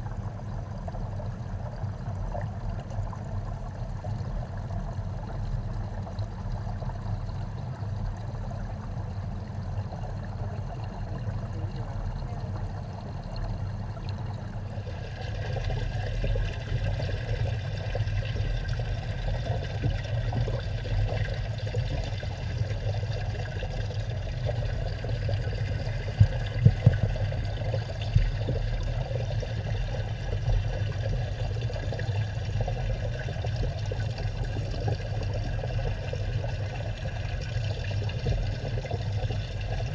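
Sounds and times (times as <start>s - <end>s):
water bubbling underwater: 0.0s - 39.9s.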